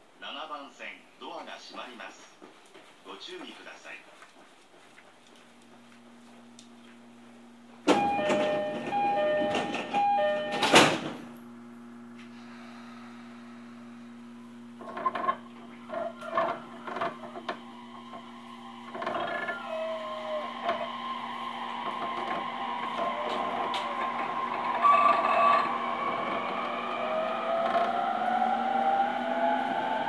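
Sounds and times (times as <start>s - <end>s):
electric train motors whining: 6.5s - 30.0s
train wheels rolling: 7.8s - 11.4s, 14.8s - 30.0s.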